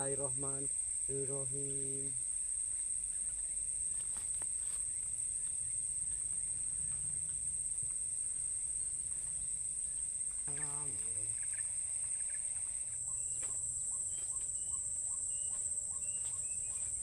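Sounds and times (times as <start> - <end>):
high-pitched insect chorus: 0.0 - 17.0
faint ticks: 1.7 - 8.5.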